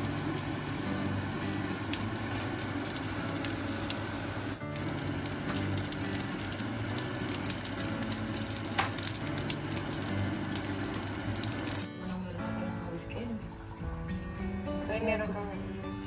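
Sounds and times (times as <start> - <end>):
eggplant sizzling in hot oil: 0.0 - 11.9.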